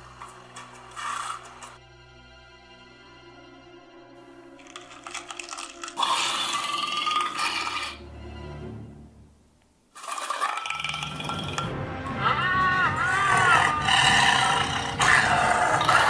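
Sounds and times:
soundtrack music: 0:11.0 - 0:16.0.

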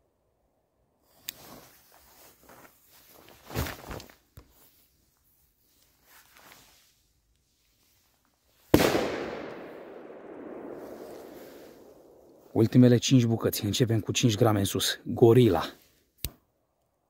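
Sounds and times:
soft noises: 0:00.9 - 0:08.7
firecracker bang echoing: 0:08.7 - 0:12.3.

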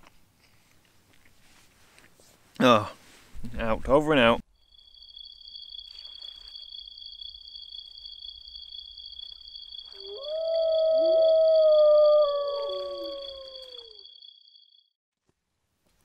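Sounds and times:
long wailing call: 0:09.8 - 0:14.2.

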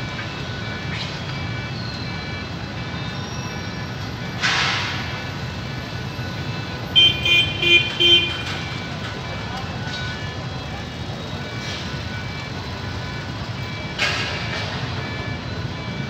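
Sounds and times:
horn tooting: 0:07.0 - 0:08.6.

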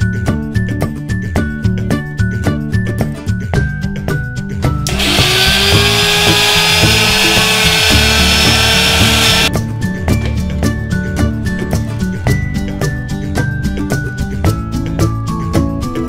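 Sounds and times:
background music: 0:00.0 - 0:16.0
mixer grinder motor running: 0:04.9 - 0:09.5.

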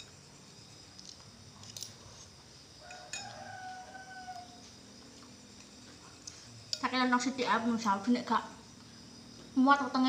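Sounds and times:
metal spoon clinking glass bowl: 0:02.8 - 0:03.4
faint rooster crowing: 0:02.8 - 0:04.9.

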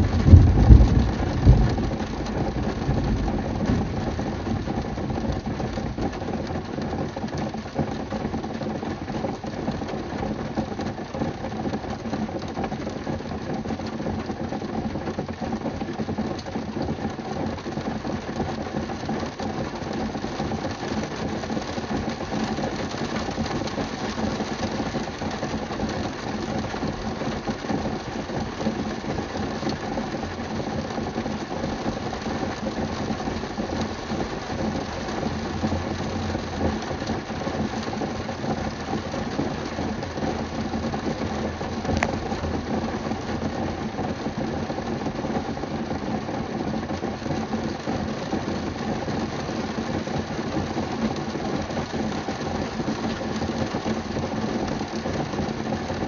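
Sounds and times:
thunder rumble: 0:00.0 - 0:05.2
rain on a car roof: 0:00.0 - 0:56.0.

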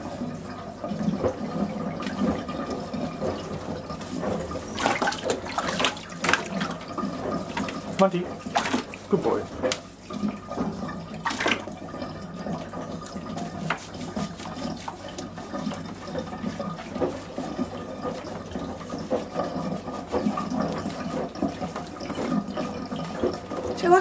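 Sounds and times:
water running and splashing: 0:00.0 - 0:24.0
hands rubbing wet fur: 0:02.0 - 0:10.0, 0:13.1 - 0:23.6.

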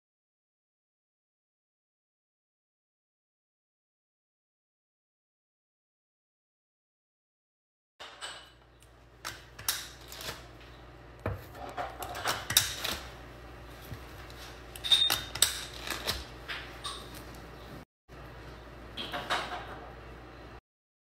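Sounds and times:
cookie press clicking and knocking: 0:08.0 - 0:13.2, 0:14.2 - 0:17.2.

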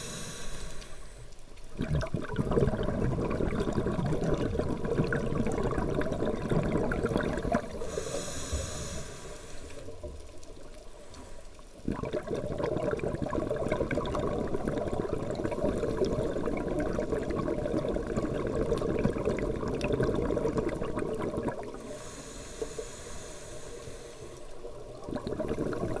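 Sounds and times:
regulator inhalation hiss: 0:00.0 - 0:01.3, 0:07.8 - 0:10.0, 0:10.9 - 0:11.6, 0:21.8 - 0:24.7
exhaled bubbles rushing underwater: 0:01.6 - 0:09.0, 0:11.7 - 0:26.0.

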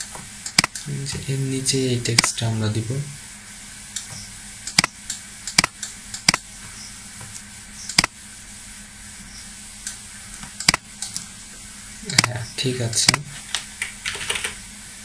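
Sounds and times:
faint electrical hum: 0:00.0 - 0:15.0
computer mouse clicking: 0:00.5 - 0:00.9.

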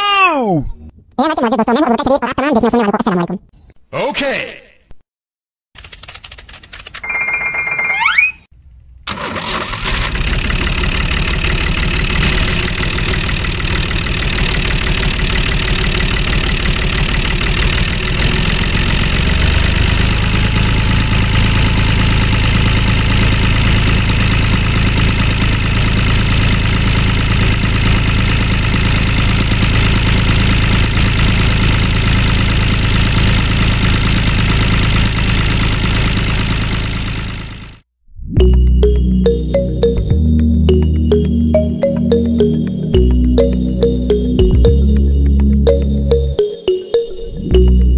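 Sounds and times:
tractor engine running: 0:09.1 - 0:37.8, 0:38.4 - 0:46.4.

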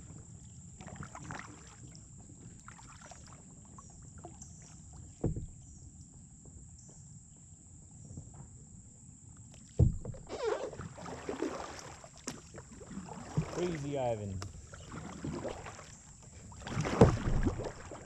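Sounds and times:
paddle splashing water: 0:00.0 - 0:05.6, 0:09.6 - 0:18.0
kayak paddle knocks: 0:05.2 - 0:05.6, 0:09.8 - 0:10.7, 0:13.2 - 0:15.8, 0:16.6 - 0:18.0.

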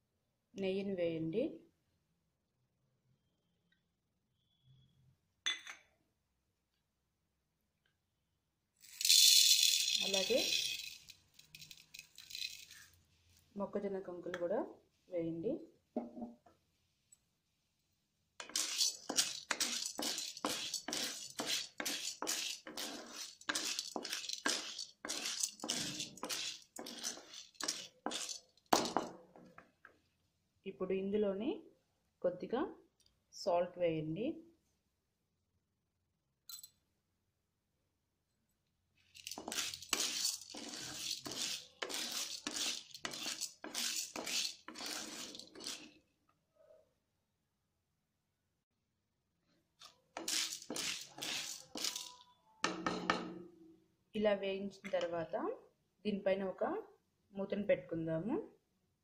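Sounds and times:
popcorn kernels rattling: 0:08.8 - 0:12.9, 0:18.4 - 0:29.1, 0:39.1 - 0:46.0, 0:50.2 - 0:52.2
spatula scraping a pan: 0:18.4 - 0:29.1, 0:39.2 - 0:46.0, 0:50.1 - 0:52.2.

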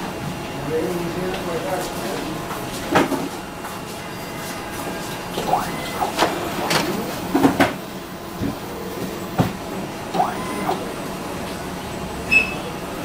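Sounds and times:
printer steady hum: 0:00.0 - 0:13.0
printer mechanical clicks and knocks: 0:05.4 - 0:07.8
short rising whirs: 0:10.1 - 0:10.9.

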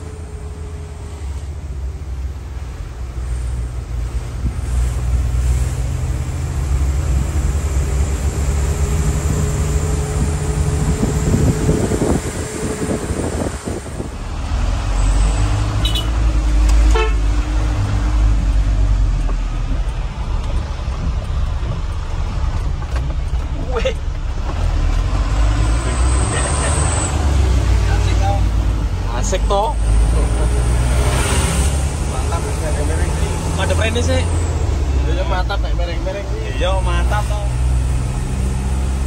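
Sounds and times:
truck engine running: 0:00.0 - 0:39.0
vehicle horn: 0:15.8 - 0:16.2, 0:16.9 - 0:17.3.

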